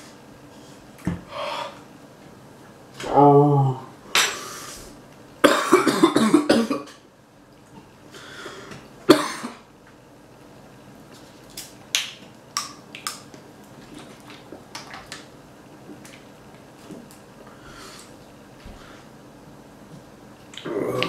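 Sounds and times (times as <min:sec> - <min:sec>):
person coughing: 0:05.4 - 0:07.0, 0:09.1 - 0:09.6.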